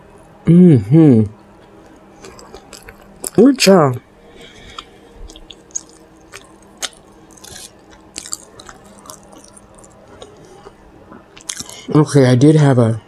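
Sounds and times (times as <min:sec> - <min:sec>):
person chewing: 0:01.4 - 0:11.9
wet mouth smacks and clicks: 0:04.7 - 0:10.4.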